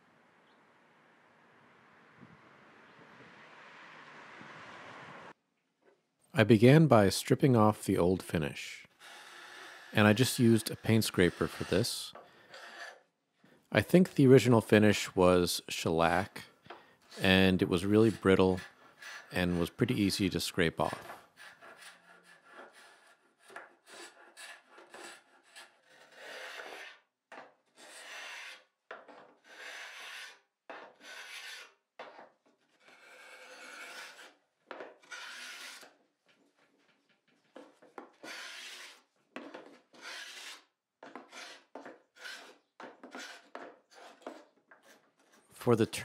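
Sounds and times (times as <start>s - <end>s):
paint scraper rasping on wood: 9.0s - 13.1s, 17.1s - 36.0s, 37.6s - 45.4s.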